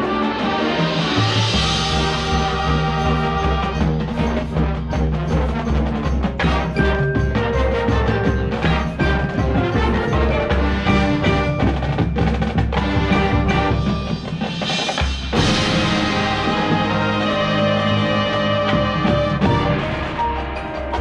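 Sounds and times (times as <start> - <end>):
mallet percussion: 0.0 - 21.0
marching band wind instruments: 0.0 - 21.0
steady drum pulse: 0.3 - 21.0
cymbal crash: 13.7 - 21.0.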